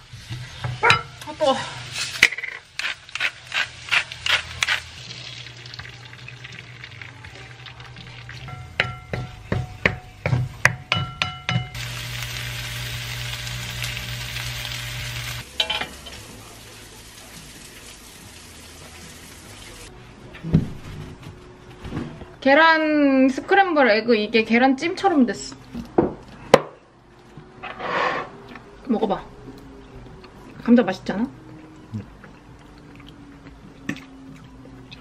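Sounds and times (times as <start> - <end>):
bacon sizzling: 0.0 - 8.4, 11.7 - 19.9.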